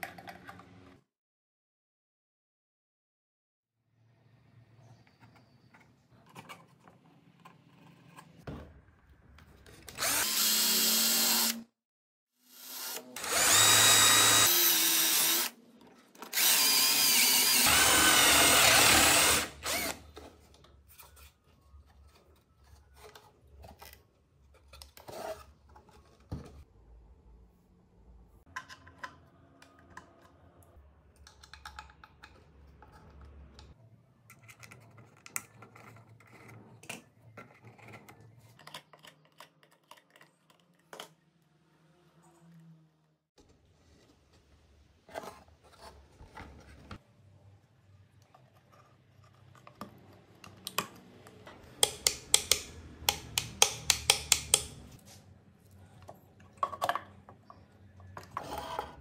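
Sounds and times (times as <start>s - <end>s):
small electric motor running: 12.5s - 15.5s, 16.3s - 20.0s.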